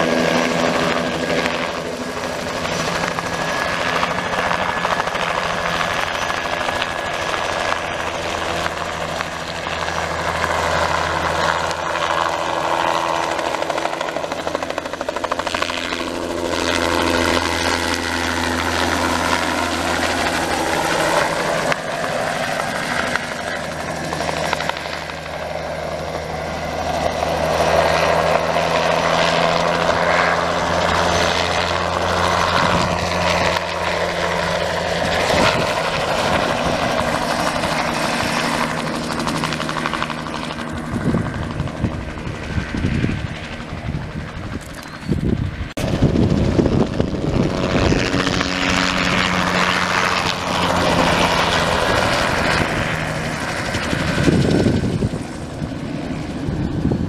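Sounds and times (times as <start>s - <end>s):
helicopter flying low: 0.0s - 57.0s.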